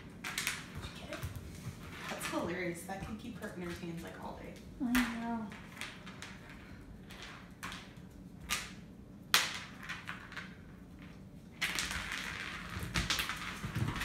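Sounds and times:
dog scraping and clattering: 0.3 - 4.4, 11.6 - 14.0.

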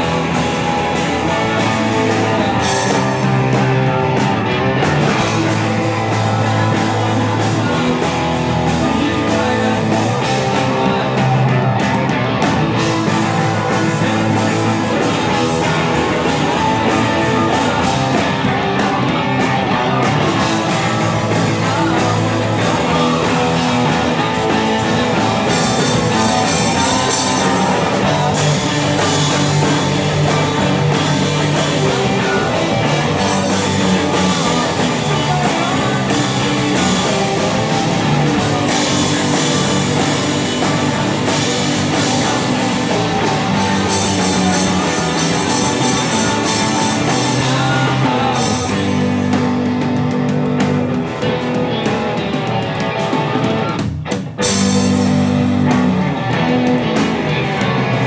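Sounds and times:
rock band playing: 0.0 - 58.0.

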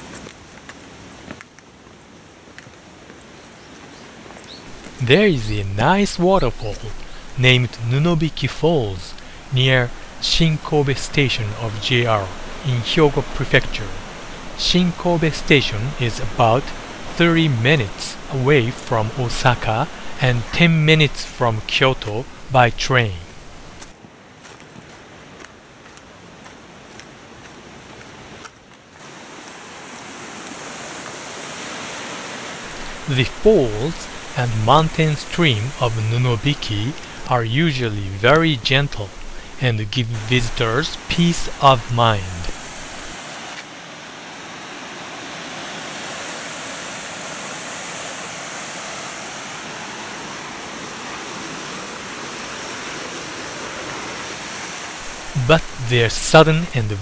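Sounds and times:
faint footsteps: 0.0 - 5.2, 23.2 - 28.1
stream water rushing: 4.1 - 25.0, 26.2 - 57.0.

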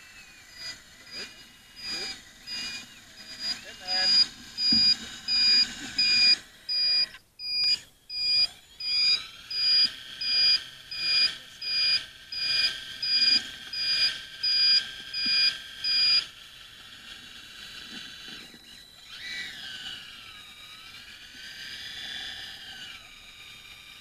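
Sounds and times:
electronic reversing beeper: 0.0 - 16.3
faint motor whine: 0.0 - 24.0.

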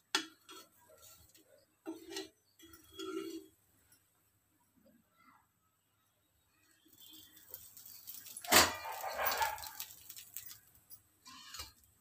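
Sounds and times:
spatula scraping iron griddle: 0.2 - 3.6.

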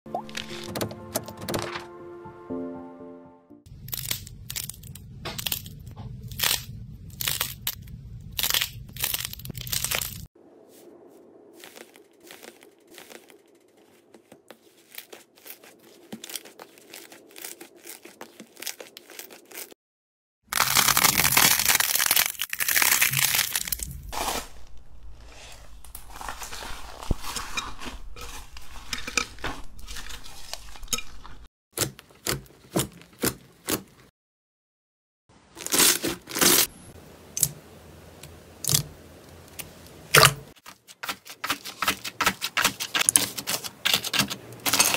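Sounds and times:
crunchy clay crackling: 3.7 - 10.3, 11.6 - 19.8, 20.5 - 34.1, 38.6 - 44.9
slime squishing: 11.6 - 19.7, 25.2 - 34.0.

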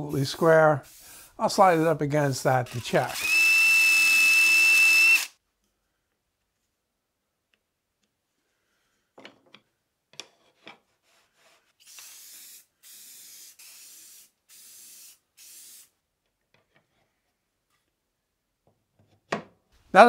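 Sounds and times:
aerosol can spraying: 11.8 - 15.9.

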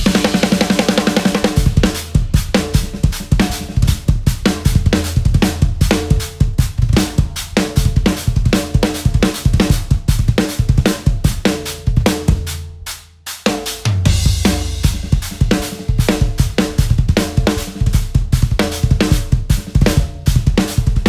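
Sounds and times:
drum kit solo: 0.0 - 21.0
bass drum pulse: 1.5 - 8.4, 14.1 - 17.1.

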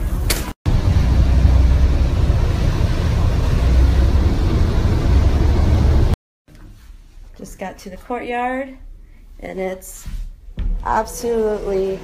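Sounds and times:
bus running from inside: 0.1 - 6.2.

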